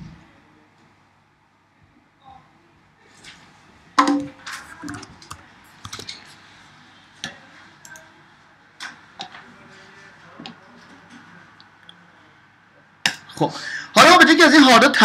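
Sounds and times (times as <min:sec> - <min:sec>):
computer keyboard typing: 0:04.8 - 0:06.2.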